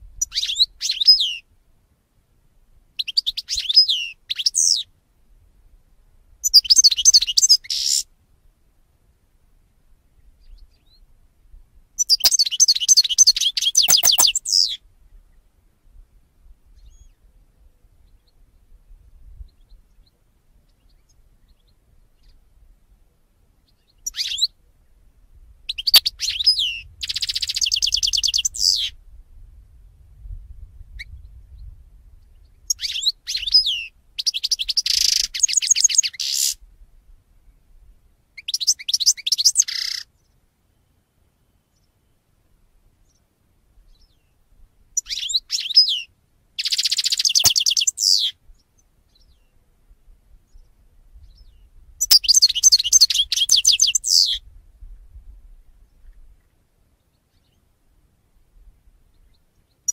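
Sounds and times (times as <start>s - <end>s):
bird twittering and trilling: 0.2s - 1.4s, 6.4s - 8.0s, 12.0s - 14.8s, 23.8s - 24.5s, 25.7s - 28.9s, 32.7s - 36.6s, 38.4s - 40.1s, 45.0s - 48.3s, 50.5s - 54.4s, 59.2s - 59.9s.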